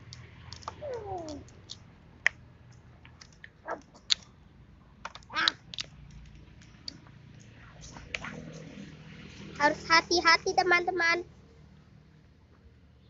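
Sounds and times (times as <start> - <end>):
shell cracking and crackling: 0.0 - 4.3, 5.0 - 7.5.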